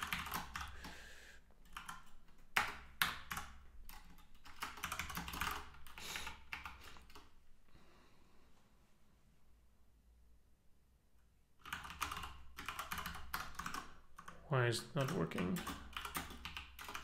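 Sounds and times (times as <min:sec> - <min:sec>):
typing on computer keyboard: 0:00.0 - 0:00.8, 0:01.6 - 0:07.4, 0:11.6 - 0:17.0.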